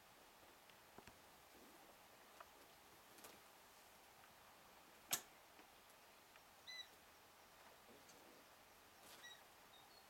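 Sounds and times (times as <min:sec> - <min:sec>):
brief high-pitched squeak: 0:09.2 - 0:09.4.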